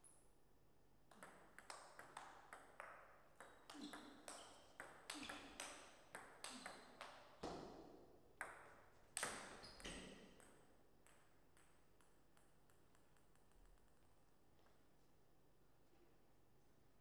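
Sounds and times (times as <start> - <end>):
ping pong ball bouncing: 1.1 - 7.8, 8.4 - 14.0.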